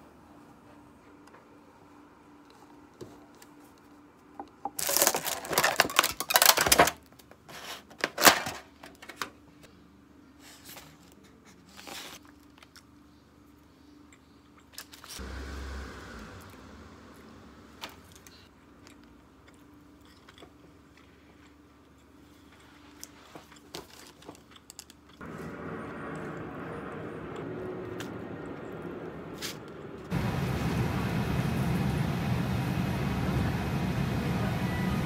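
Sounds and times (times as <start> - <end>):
objects rustling and clattering: 2.5 - 9.4, 22.4 - 25.5.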